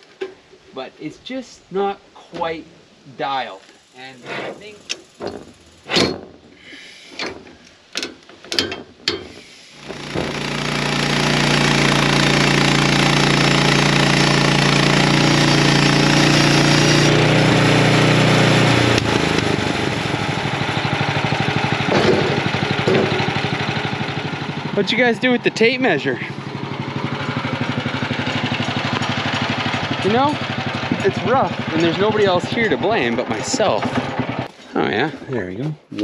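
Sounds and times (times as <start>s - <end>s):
sharp knocks: 4.9s - 6.6s, 7.2s - 10.5s, 21.3s - 24.7s
sawmill engine running: 9.4s - 34.6s
band saw blade cutting log: 9.8s - 34.5s.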